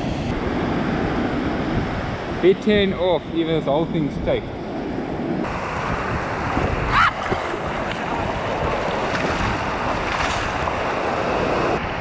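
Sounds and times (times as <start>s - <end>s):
surf washing on beach: 0.0s - 12.0s
wind buffeting microphone: 0.0s - 12.0s
water splashing: 5.7s - 11.8s.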